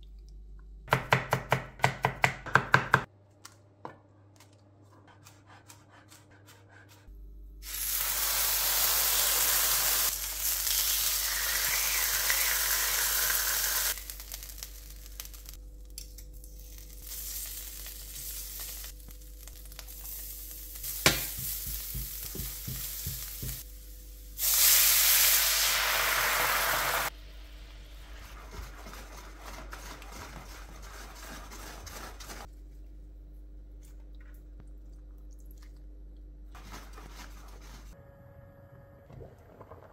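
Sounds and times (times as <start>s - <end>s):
food sizzling in a frying pan: 7.6s - 15.6s, 16.6s - 27.1s
stirring in a pan: 27.9s - 32.5s.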